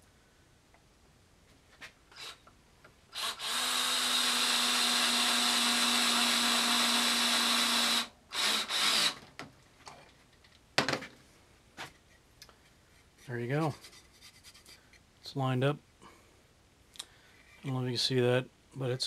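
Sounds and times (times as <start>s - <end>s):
power drill driving screw: 2.1s - 2.4s, 3.1s - 9.2s.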